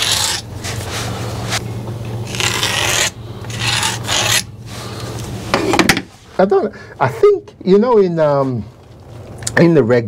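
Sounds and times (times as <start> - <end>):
pencil scratching on rough wall: 0.0 - 1.6
steady low hum: 0.0 - 10.0.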